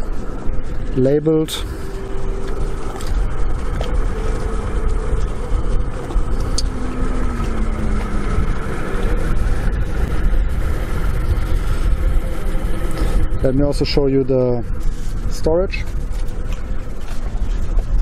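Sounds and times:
faint hum: 0.0 - 18.0
wind buffeting microphone: 0.0 - 18.0.

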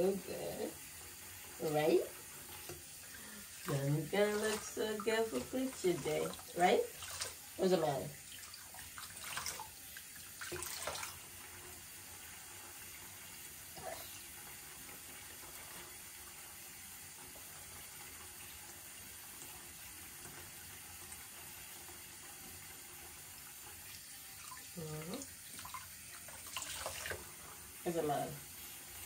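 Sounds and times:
water running from tap: 0.0 - 29.0.

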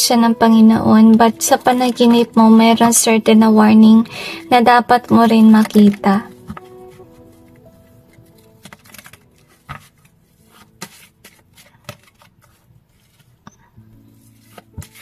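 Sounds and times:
cards being shuffled: 5.4 - 15.0.

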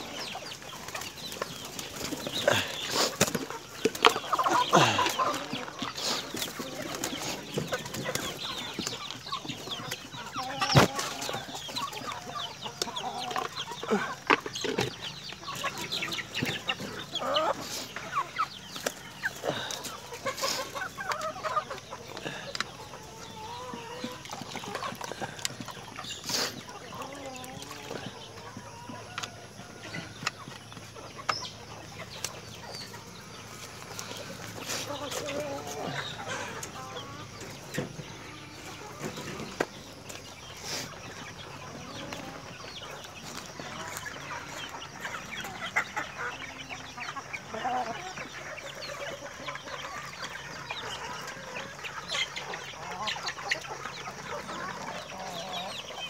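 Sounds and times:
chickens clucking: 0.0 - 56.0
wings flapping and scuffling: 0.3 - 12.3.

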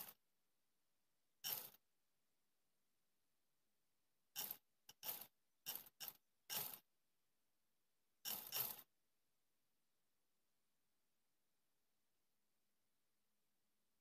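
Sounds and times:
sewing machine stitching: 1.4 - 1.8, 4.4 - 6.8, 8.3 - 8.9.

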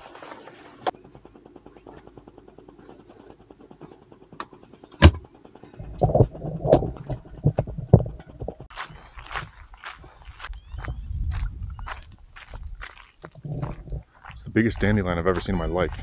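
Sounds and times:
wind rumbling over microphone: 4.9 - 16.0.

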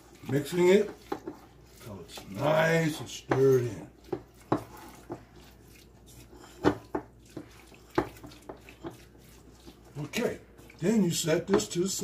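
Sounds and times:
spatula scraping in bowl: 0.0 - 12.0
spatula knocking against bowl: 0.3 - 1.5, 3.2 - 5.3, 6.6 - 9.1, 11.4 - 11.8.

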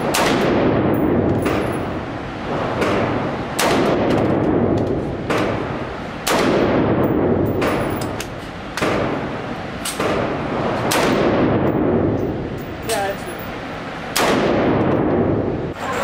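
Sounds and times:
rifle shots echoing indoors: 0.0 - 8.2, 9.9 - 12.1, 14.2 - 15.3.

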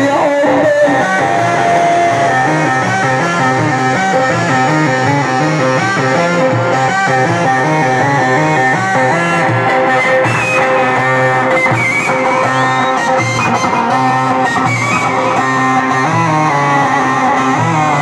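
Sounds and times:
live band instrumental music: 0.0 - 18.0.

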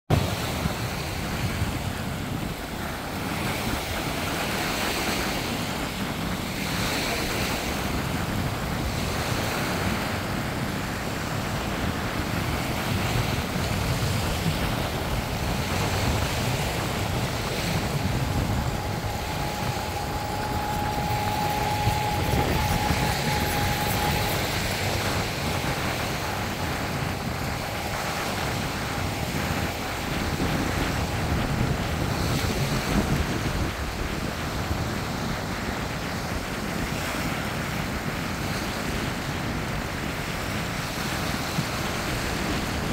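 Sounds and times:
small waves on sandy beach: 0.1 - 42.9
wind rumble on microphone: 0.1 - 42.9
thin steady tone: 12.8 - 33.0.

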